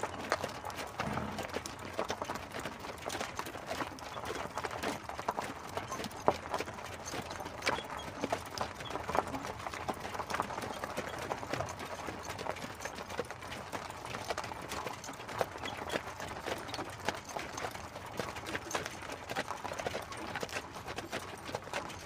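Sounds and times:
horse hooves clip-clopping: 0:00.0 - 0:22.0.

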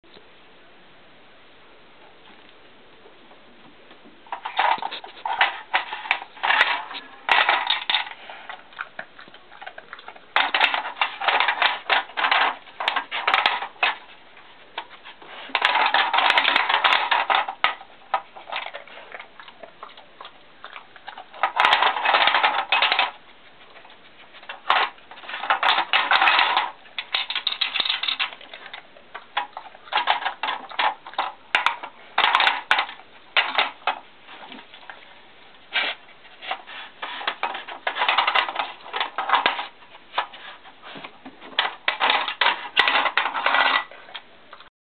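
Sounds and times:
plastic puzzle clattering: 0:04.3 - 0:14.2, 0:14.8 - 0:18.9, 0:20.6 - 0:23.2, 0:24.4 - 0:34.7, 0:36.4 - 0:44.3.

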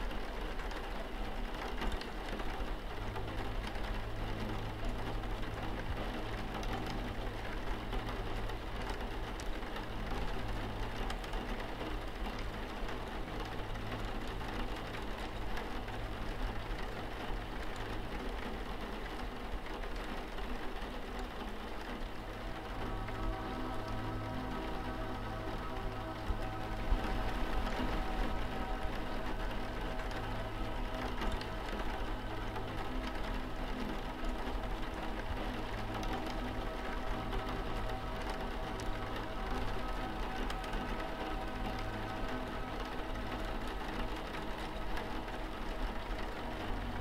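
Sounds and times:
low hum: 0:00.0 - 0:47.0
rain pattering on window glass: 0:00.0 - 0:47.0
music: 0:22.2 - 0:47.0.

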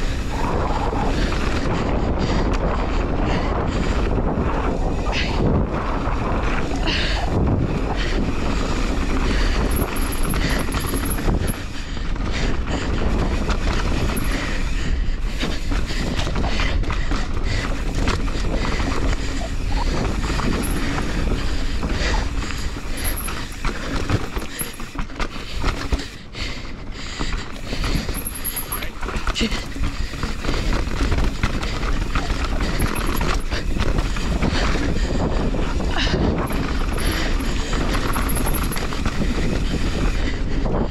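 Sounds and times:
bike rattling over bumps: 0:00.0 - 0:40.9
tyres rumbling on dirt: 0:00.0 - 0:40.9
wind buffeting microphone: 0:00.0 - 0:40.9.

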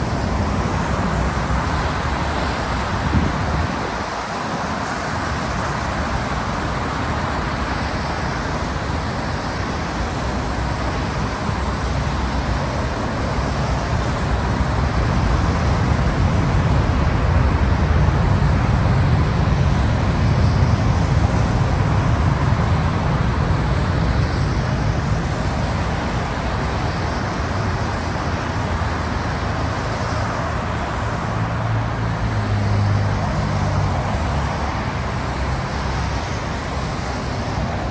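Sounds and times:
heavy vehicles rumbling: 0:00.0 - 0:37.9
low engine hum: 0:00.0 - 0:37.9.

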